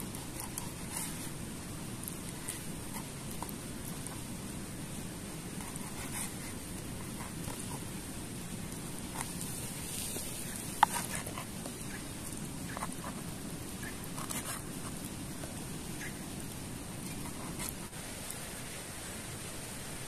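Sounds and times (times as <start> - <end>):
campfire crackling: 0.0 - 20.0
steady hiss: 0.0 - 20.0.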